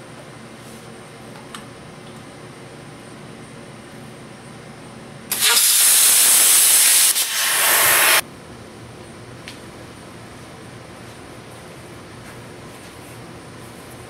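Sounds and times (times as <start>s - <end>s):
plasma cutter hissing: 5.3s - 8.2s.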